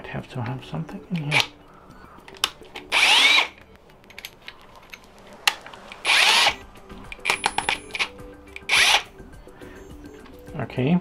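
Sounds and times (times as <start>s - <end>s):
cordless drill motor whirring: 2.8s - 3.6s, 6.0s - 6.6s, 7.2s - 9.1s.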